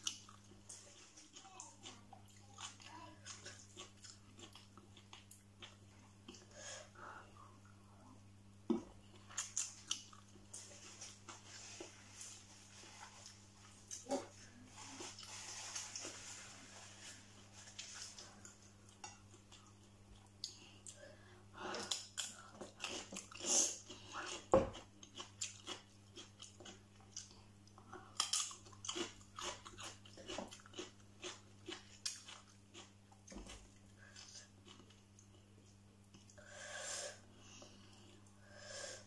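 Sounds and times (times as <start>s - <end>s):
low electrical hum: 0.0s - 39.0s
crunchy chewing: 21.7s - 35.4s.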